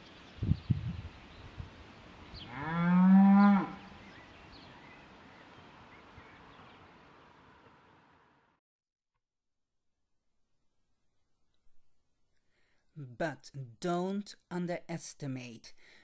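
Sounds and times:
cow mooing: 0:02.4 - 0:04.0.

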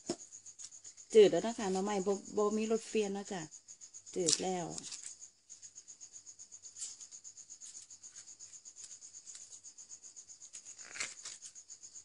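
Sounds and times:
high insect chirping: 0:00.0 - 0:12.0
hands rubbing and scraping bamboo: 0:04.2 - 0:05.2, 0:06.6 - 0:12.0.

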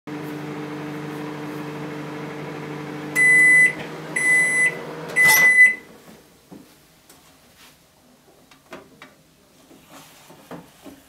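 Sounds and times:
microwave oven humming: 0:00.1 - 0:06.0
microwave beeps: 0:03.1 - 0:05.9.

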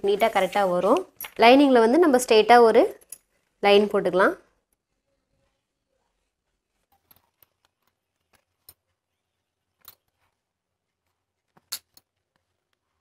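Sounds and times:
paper and cloth rustling: 0:00.0 - 0:01.5.

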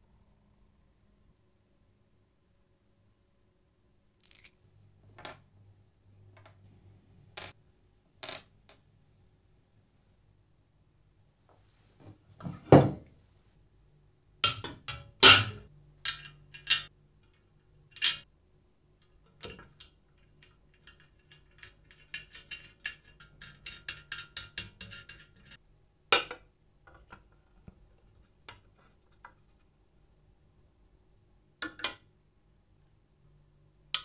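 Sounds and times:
metal parts knocking and clinking: 0:14.4 - 0:16.9.

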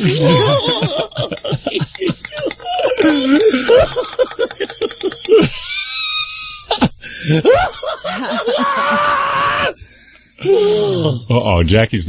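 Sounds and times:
wailing voice: 0:00.0 - 0:01.2, 0:02.4 - 0:04.0, 0:07.4 - 0:09.8
people laughing: 0:00.0 - 0:09.8.

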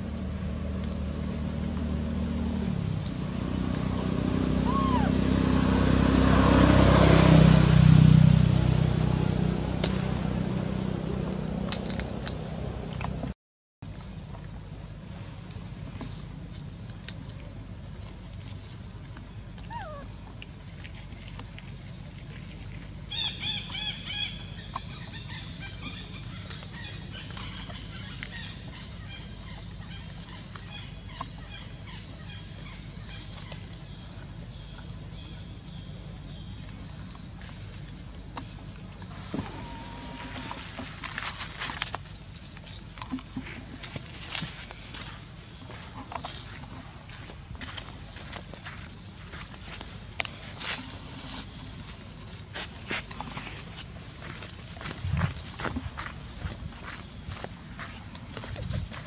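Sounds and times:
vehicle engine passing: 0:00.0 - 0:13.4, 0:34.6 - 0:42.0
high animal calls: 0:04.2 - 0:05.9, 0:19.6 - 0:20.2, 0:39.1 - 0:40.8
high-pitched hum: 0:39.1 - 0:40.9.

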